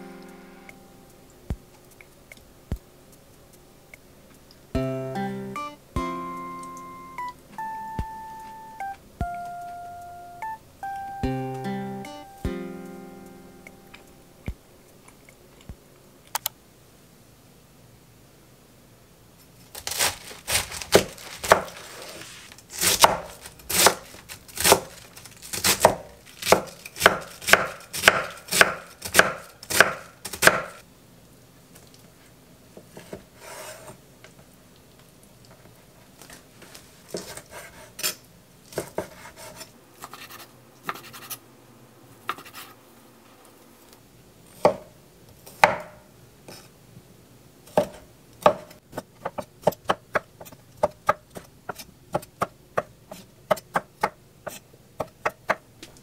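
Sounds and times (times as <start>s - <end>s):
knife chopping on wooden board: 19.9s - 21.8s, 22.8s - 24.0s, 24.6s - 24.9s, 25.5s - 30.8s, 38.7s - 41.3s, 44.6s - 44.9s, 45.5s - 46.0s, 47.7s - 55.6s.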